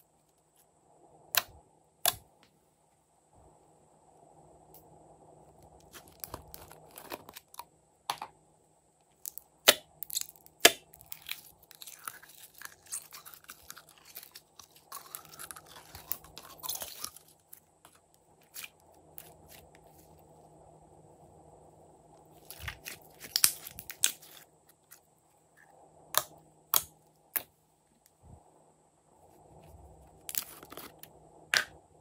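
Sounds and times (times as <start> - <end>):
slime crackling and squelching: 5.8 - 7.6, 9.2 - 20.2, 22.3 - 25.0, 30.1 - 31.1.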